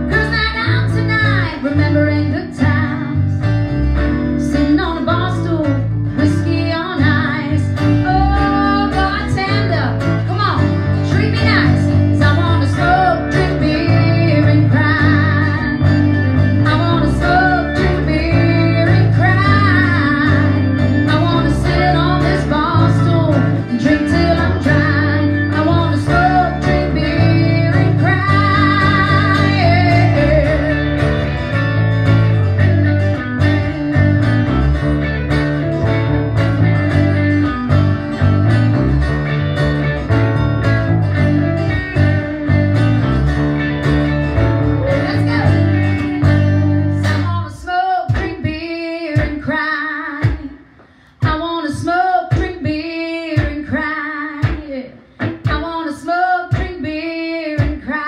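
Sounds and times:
electric bass: 0:00.0 - 0:48.5
strummed acoustic guitar: 0:00.0 - 0:49.6
electric guitar: 0:00.0 - 0:58.0
person singing: 0:04.4 - 0:31.3, 0:44.8 - 0:50.6.

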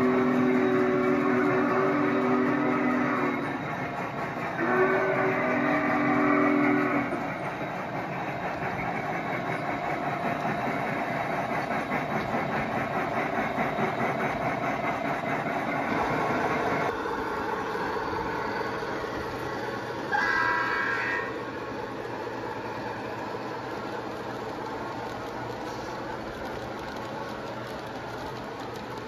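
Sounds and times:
model train chime whistle: 0:00.0 - 0:03.6, 0:04.6 - 0:07.2
steam locomotive chuffing: 0:00.0 - 0:29.0.

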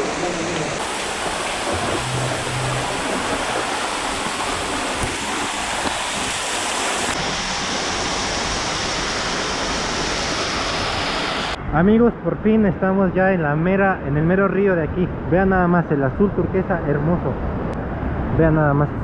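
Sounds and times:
waterfall rushing onto rocks: 0:00.0 - 0:11.6.

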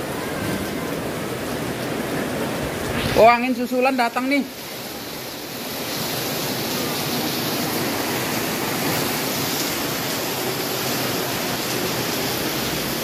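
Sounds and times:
heavy rain pouring: 0:00.0 - 0:13.0
storm wind gust: 0:02.5 - 0:03.8.

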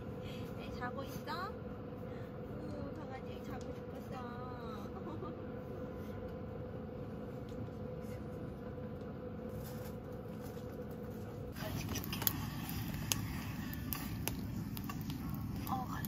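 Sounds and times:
faint steady whine: 0:00.0 - 0:16.0
steady hum: 0:00.0 - 0:16.0
wood fire crackling and popping: 0:09.0 - 0:16.0.

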